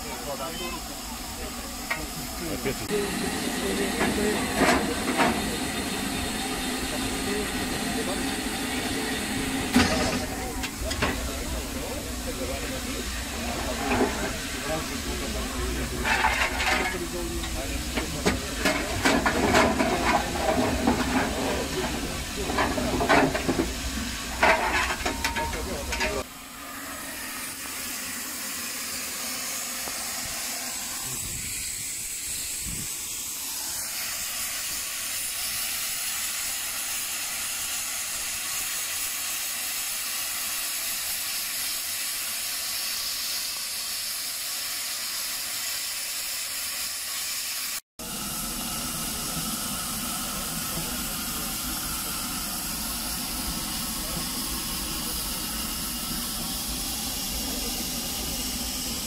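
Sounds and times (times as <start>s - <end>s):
steam locomotive hissing: 0.0s - 59.0s.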